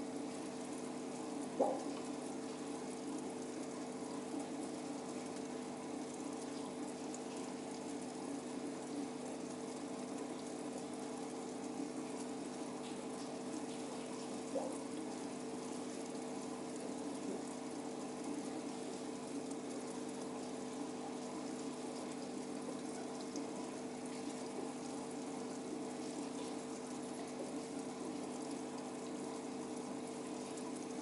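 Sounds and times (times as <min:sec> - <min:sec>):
water pump humming: 0:00.0 - 0:31.0
water trickling and splashing: 0:00.0 - 0:31.0.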